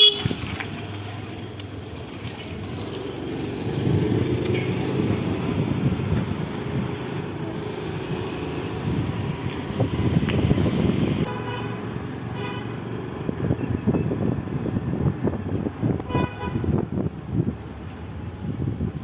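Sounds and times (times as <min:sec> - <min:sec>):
motorbike engine: 0:00.0 - 0:11.3
road noise: 0:00.0 - 0:19.0
wind rumbling over microphone: 0:02.4 - 0:11.3, 0:13.0 - 0:19.0.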